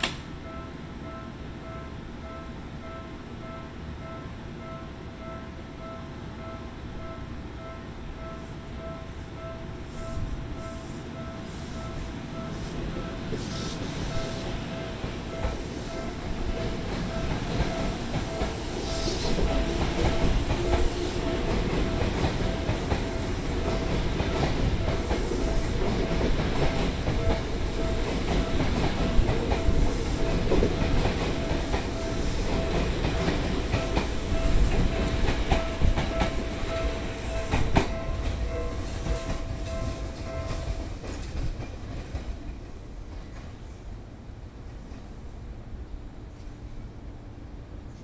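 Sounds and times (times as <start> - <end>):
train humming: 0.0 - 48.0
train wheels clattering over rail joints: 15.0 - 43.6.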